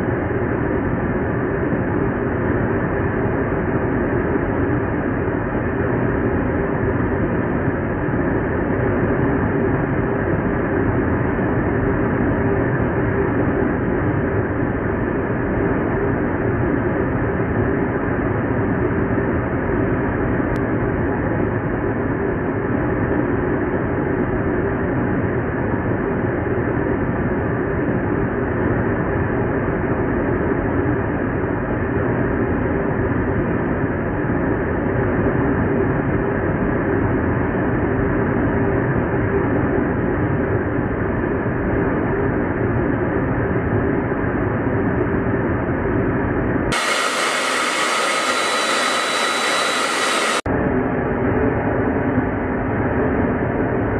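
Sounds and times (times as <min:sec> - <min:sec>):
aircraft engine and airflow roar: 0:00.0 - 0:53.9
jet aircraft roar: 0:46.7 - 0:52.5.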